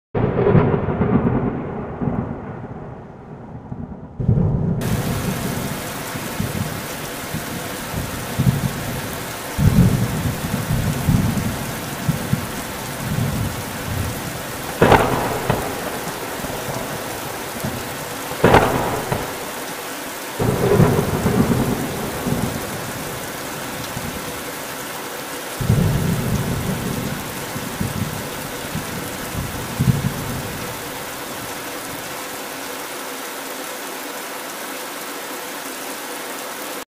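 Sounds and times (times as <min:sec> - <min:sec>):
low rumbling: 0:00.2 - 0:08.9
hailstones pelting grass: 0:04.8 - 0:32.2
sharp cracks: 0:14.6 - 0:19.8.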